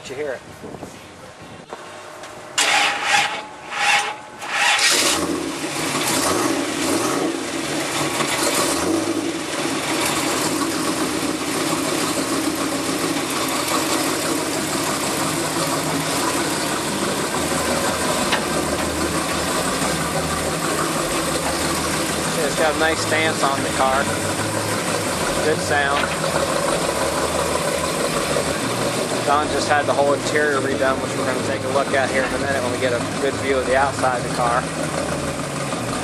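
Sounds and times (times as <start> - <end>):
starter cranking: 2.6 - 5.3
engine revving and idling: 2.6 - 36.0.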